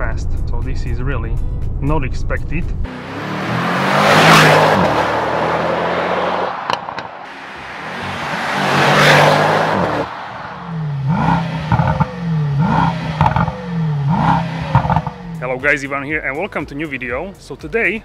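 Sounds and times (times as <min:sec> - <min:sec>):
car engine passing by: 0:02.8 - 0:15.4.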